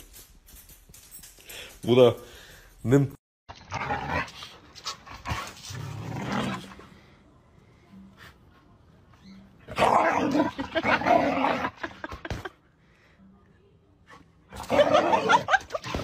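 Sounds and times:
dogs growling: 0:05.2 - 0:06.9, 0:09.7 - 0:12.0.

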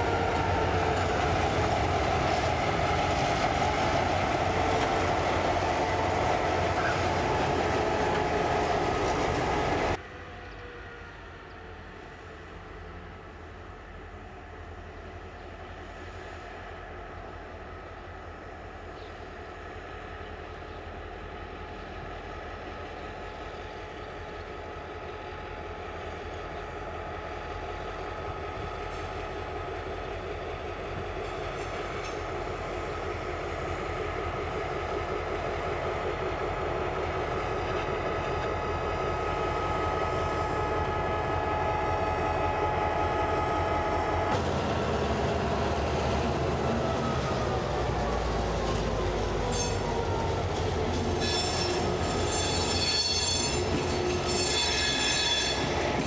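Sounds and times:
train running by: 0:00.0 - 0:56.0.

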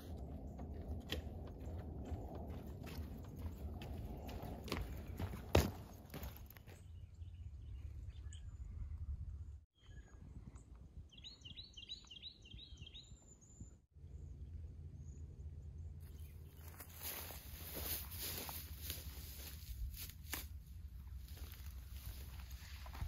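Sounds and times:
wind rumbling on microphone: 0:00.0 - 0:06.3, 0:07.0 - 0:13.8, 0:20.9 - 0:23.0
bird chirps: 0:06.1 - 0:17.3.

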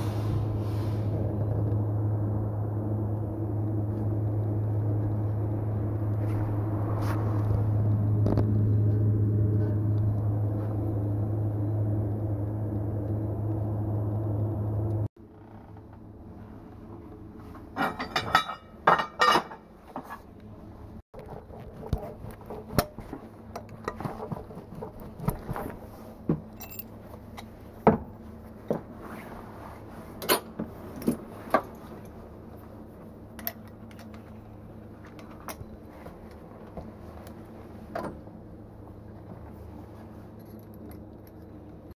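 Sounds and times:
low hum: 0:00.0 - 0:19.2
metal hand tools clinking: 0:26.6 - 0:26.9.

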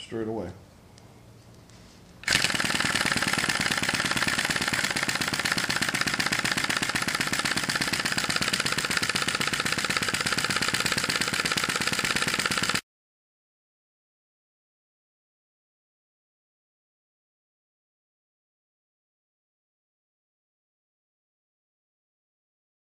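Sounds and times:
model engine clattering: 0:02.2 - 0:12.8.

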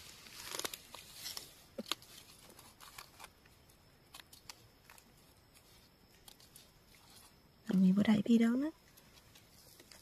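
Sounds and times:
dry leaves rustling and crackling: 0:00.0 - 0:03.3.

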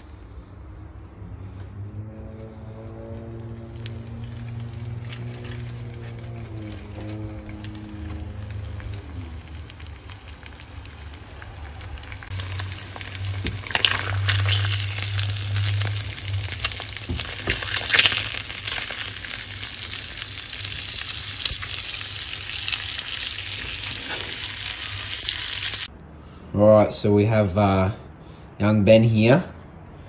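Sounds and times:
oil spitting and crackling: 0:01.8 - 0:25.9
fish sizzling in hot oil: 0:02.8 - 0:25.9.

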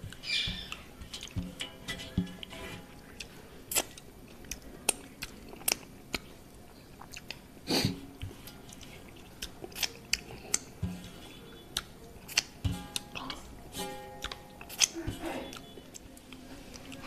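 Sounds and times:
wet chewing mouth smacks: 0:08.2 - 0:10.7, 0:14.2 - 0:17.0.

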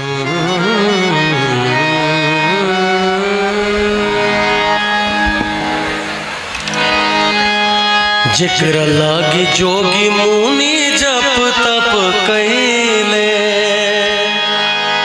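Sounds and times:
electronic keyboard melody: 0:00.0 - 0:15.0.

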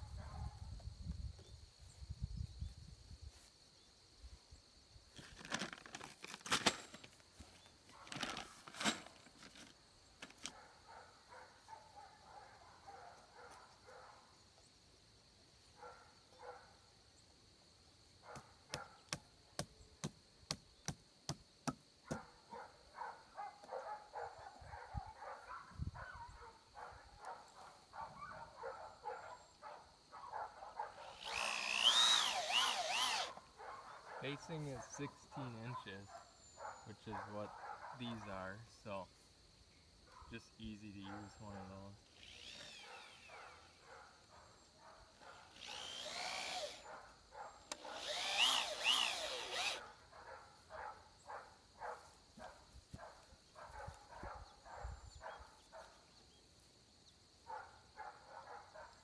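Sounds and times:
power drill driving screws: 0:31.1 - 0:33.4, 0:42.1 - 0:43.3, 0:45.5 - 0:46.8, 0:47.7 - 0:49.8.

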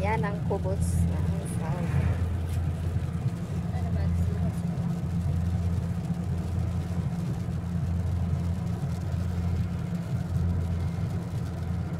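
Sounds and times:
car driving at highway speed: 0:00.0 - 0:11.9.

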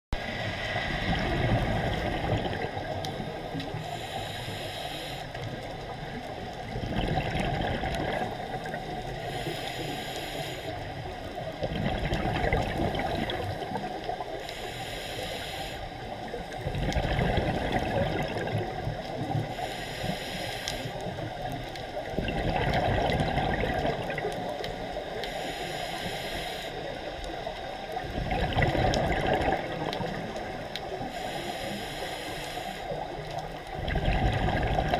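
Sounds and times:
exhaled bubbles rumbling: 0:00.2 - 0:03.7, 0:05.5 - 0:09.3, 0:11.2 - 0:14.4, 0:16.2 - 0:19.6, 0:21.1 - 0:25.0, 0:27.9 - 0:31.2, 0:33.2 - 0:34.9
diver breathing through regulator: 0:03.6 - 0:05.4, 0:08.1 - 0:10.9, 0:14.3 - 0:16.1, 0:19.4 - 0:21.2, 0:25.1 - 0:26.9, 0:30.8 - 0:33.1.

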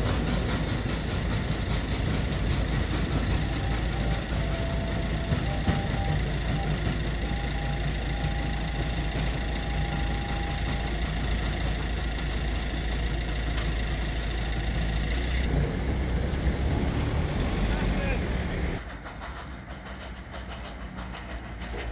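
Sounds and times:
barrier motor whine: 0:03.6 - 0:18.8.

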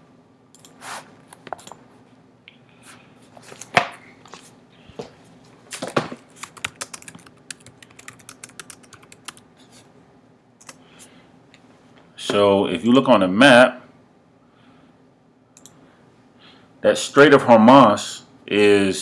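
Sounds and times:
typing on computer keyboard: 0:06.4 - 0:09.4.

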